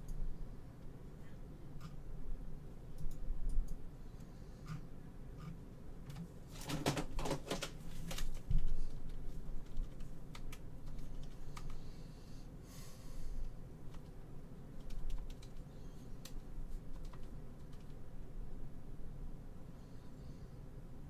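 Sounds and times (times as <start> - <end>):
computer keyboard typing: 6.1 - 11.9, 13.9 - 14.2, 14.8 - 18.0.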